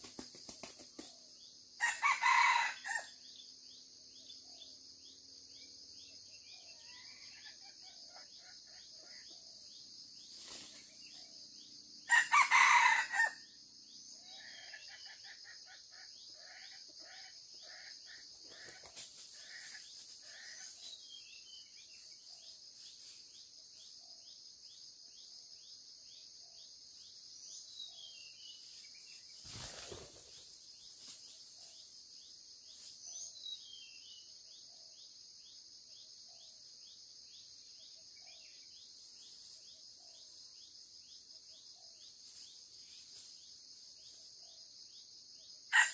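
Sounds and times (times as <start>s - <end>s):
insect buzz: 0.0s - 45.9s
rooster crowing: 1.8s - 3.1s, 12.1s - 13.5s.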